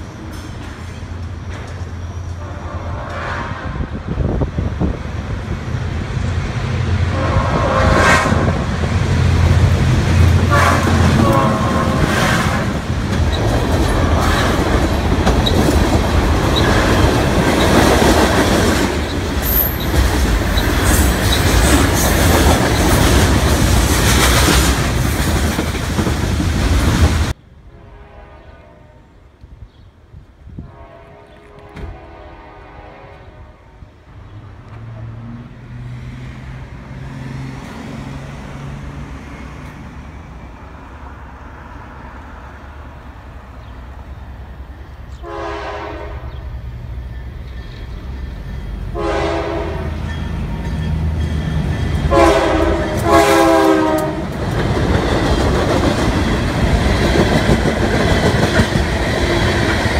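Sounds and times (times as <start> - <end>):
diesel locomotive engine: 0.0 - 59.9
train horn blasts: 2.4 - 4.1, 7.1 - 8.6, 10.4 - 12.7, 27.7 - 29.1, 30.6 - 33.8, 45.2 - 46.4, 48.9 - 50.1, 52.1 - 54.3
train wheels clacking: 10.2 - 27.3, 49.9 - 59.9.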